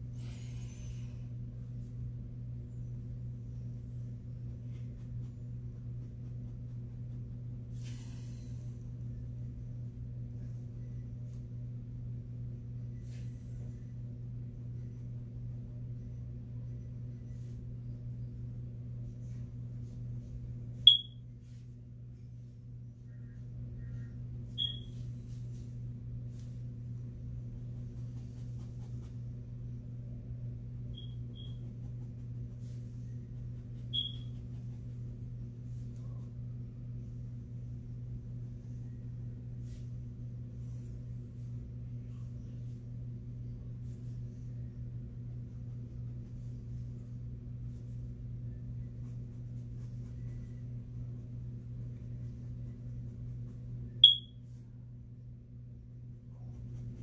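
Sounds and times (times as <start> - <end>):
steady low hum: 0.0 - 57.0
high-pitched pings: 20.9 - 21.2, 54.0 - 54.4.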